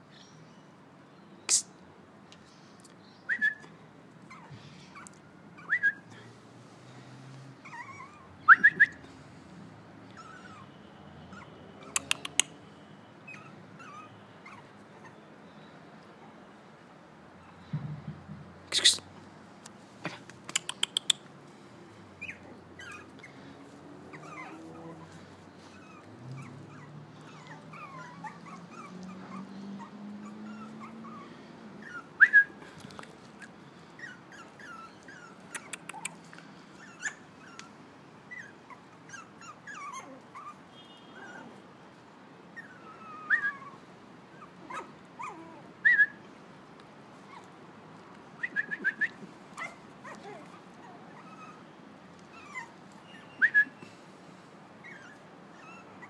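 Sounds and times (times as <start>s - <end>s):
puppies whimpering and yipping: 4.2s - 6.0s, 7.6s - 8.4s, 10.1s - 12.3s, 13.2s - 15.2s, 22.2s - 32.3s, 33.7s - 41.6s, 42.5s - 46.0s, 47.2s - 47.6s, 49.5s - 53.6s, 54.8s - 56.0s
puppy yelp: 7.6s - 8.6s, 10.2s - 10.7s, 11.3s - 12.5s, 13.3s - 15.2s, 24.1s - 25.1s, 25.7s - 31.2s, 38.3s - 41.6s, 42.6s - 43.8s, 44.4s - 46.1s, 49.6s - 51.7s, 52.3s - 53.8s, 54.8s - 56.0s
sharp clicks: 20.3s - 21.3s.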